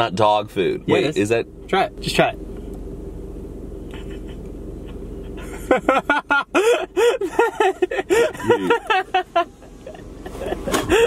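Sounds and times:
low hum inside car: 0.0 - 11.0
man laughing loudly: 3.9 - 11.0.

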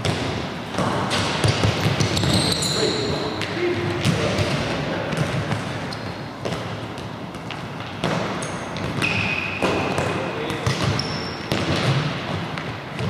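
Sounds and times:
balls kicked and bouncing on hall floor: 0.0 - 13.0
short high squeaks: 2.2 - 3.2.

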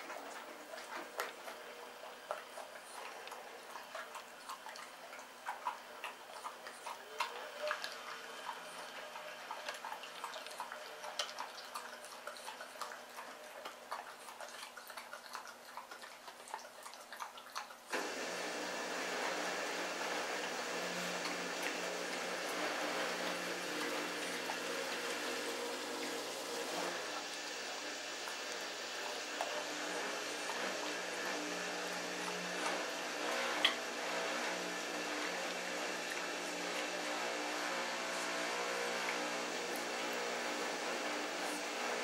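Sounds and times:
puppy chewing bones: 0.0 - 18.0, 18.7 - 34.0.

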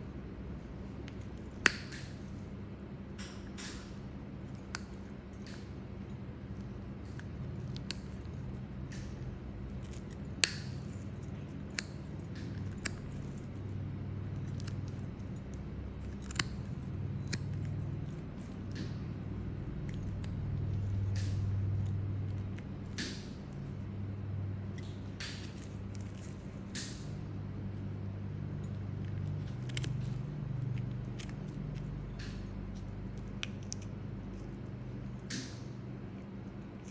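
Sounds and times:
low steady hum: 0.0 - 36.9
nail nippers clicking: 1.0 - 2.3, 6.6 - 13.6, 14.4 - 19.0, 28.6 - 34.4.

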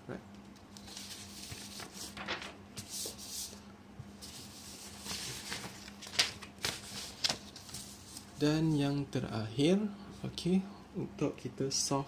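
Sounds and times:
paper rustling: 0.8 - 3.6, 4.2 - 8.3.

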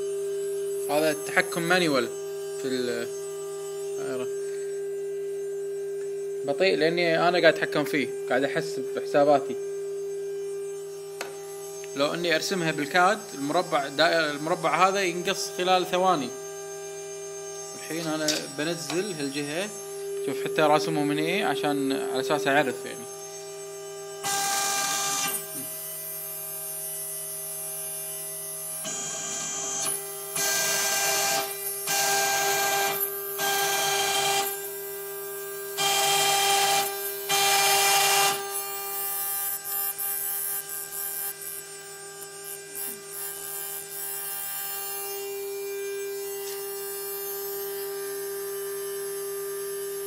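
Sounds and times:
router spindle whine: 0.0 - 50.0
router bit cutting wood: 10.7 - 50.0.

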